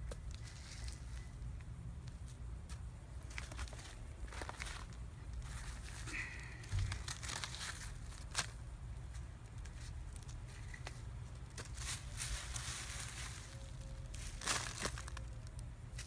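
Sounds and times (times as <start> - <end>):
newspaper tearing and crumpling: 6.9 - 8.6, 11.6 - 15.3.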